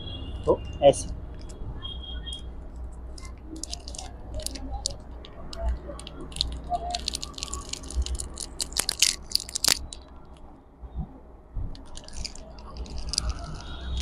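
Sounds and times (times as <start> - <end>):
battery packing crinkling: 3.2 - 10.4, 11.8 - 14.0.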